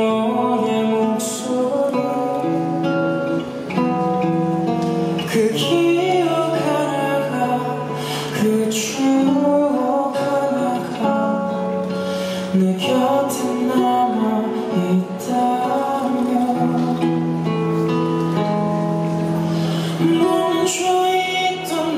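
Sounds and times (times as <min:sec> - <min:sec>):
man singing into microphone: 0:00.0 - 0:03.2, 0:05.2 - 0:17.5, 0:19.8 - 0:21.9
acoustic guitar: 0:00.0 - 0:21.9.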